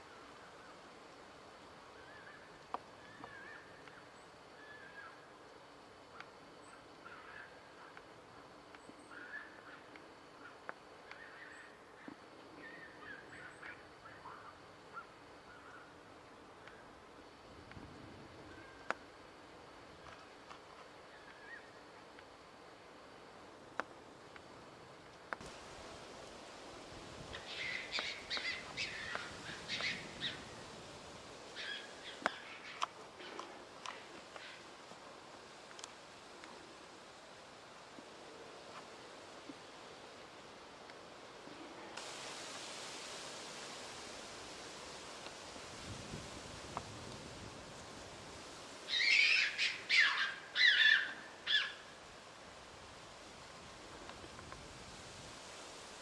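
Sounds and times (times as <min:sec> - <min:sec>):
bird harsh calls: 0:27.4 - 0:30.4, 0:48.9 - 0:51.8.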